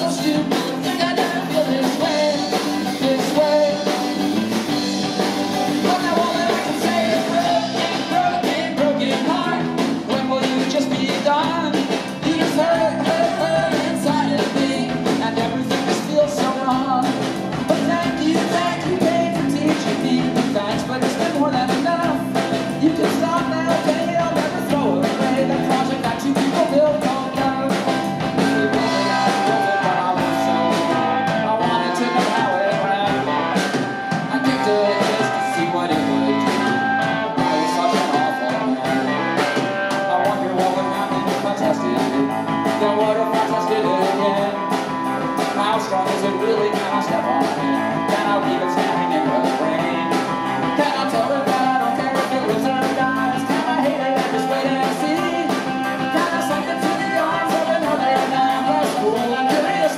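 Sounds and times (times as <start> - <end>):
drum kit beat: 0.0 - 59.9
keyboard: 0.0 - 59.9
man singing: 0.0 - 59.9.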